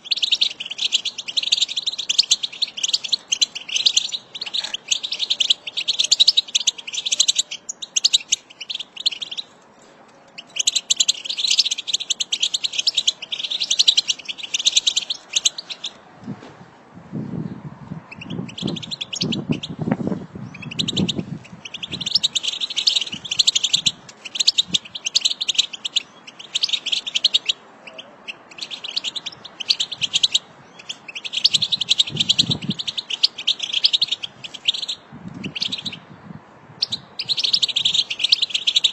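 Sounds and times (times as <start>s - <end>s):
goldfinch twittering song: 0.0s - 9.5s, 10.3s - 16.0s, 18.1s - 19.8s, 20.4s - 36.1s, 36.8s - 38.9s.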